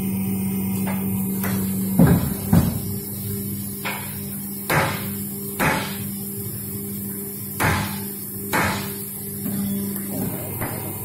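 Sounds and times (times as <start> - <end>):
electric motor humming: 0.0 - 11.0
machine knocks and clacks: 0.9 - 3.1.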